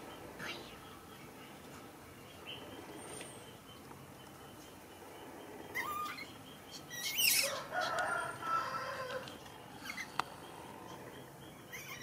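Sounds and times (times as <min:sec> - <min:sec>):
baby monkey squeaking: 0:05.7 - 0:06.3, 0:06.9 - 0:07.6, 0:11.7 - 0:12.0.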